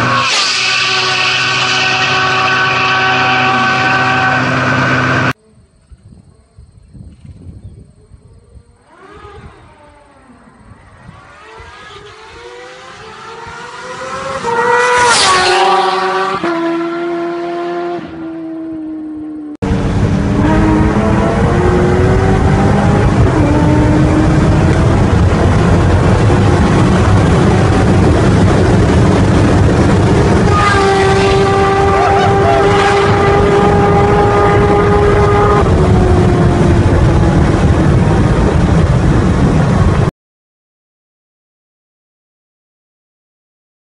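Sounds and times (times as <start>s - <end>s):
road and wind rumble: 0.0s - 40.1s
motorcycle upshifts: 8.8s - 16.9s
motorcycle engine at full throttle: 19.4s - 40.1s.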